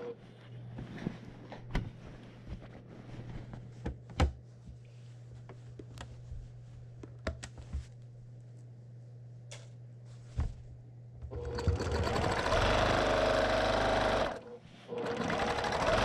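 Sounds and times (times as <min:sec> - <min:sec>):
sewing machine humming: 0:11.3 - 0:16.0.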